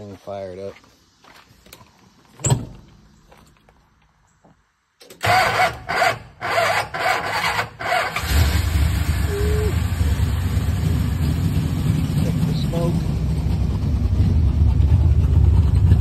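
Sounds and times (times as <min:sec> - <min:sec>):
car engine cranking: 0:05.0 - 0:12.6
car engine running: 0:08.3 - 0:16.0.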